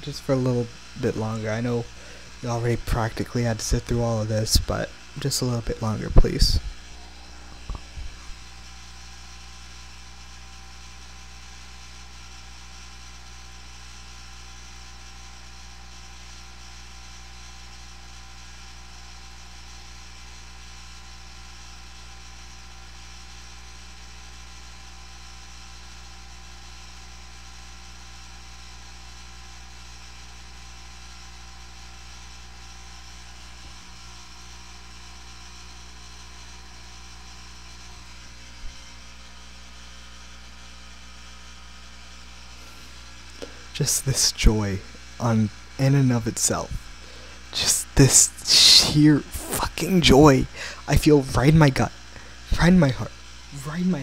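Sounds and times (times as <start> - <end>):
mains hum: 0.0 - 54.0
microphone electrical hiss: 5.2 - 8.5.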